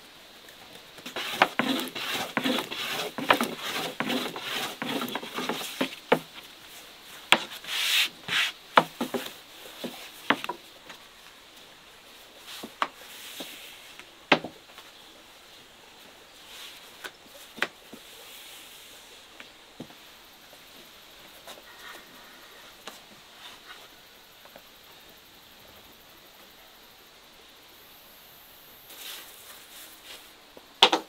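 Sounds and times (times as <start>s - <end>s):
scraping on wooden surface: 1.0s - 6.3s, 7.3s - 10.6s.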